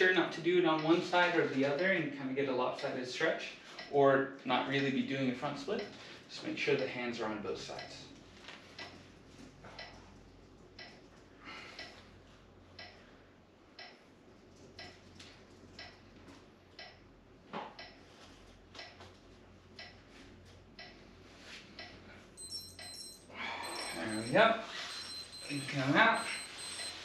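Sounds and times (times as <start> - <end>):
low steady hum: 0.0 - 27.0
clock ticking faintly: 0.7 - 2.0, 2.8 - 3.0, 3.7 - 4.0, 5.8 - 6.0, 6.7 - 7.0, 7.7 - 9.1, 9.7 - 11.1, 11.7 - 12.1, 12.7 - 13.1, 13.7 - 17.1, 17.7 - 18.1, 18.7 - 19.1, 19.7 - 21.1, 21.7 - 27.0.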